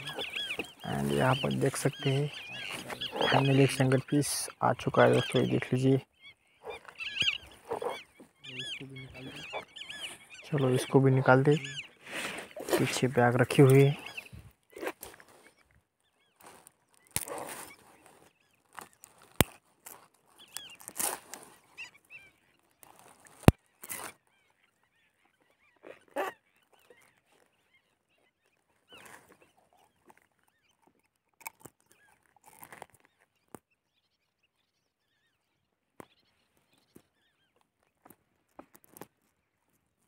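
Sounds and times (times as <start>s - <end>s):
net rustling and scraping: 16.4s - 21.6s.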